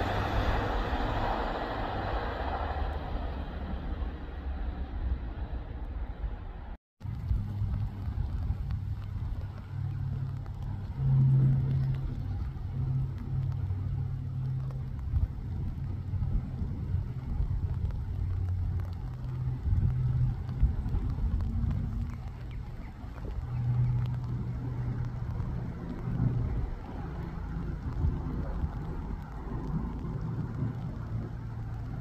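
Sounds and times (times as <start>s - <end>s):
distant electric train: 0.0s - 6.7s
wind rumbling on microphone: 0.0s - 32.0s.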